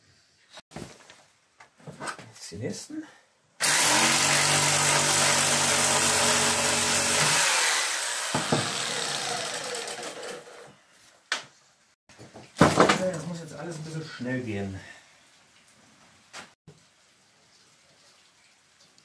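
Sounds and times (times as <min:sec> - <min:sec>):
jigsaw cutting wood: 0:03.6 - 0:10.7.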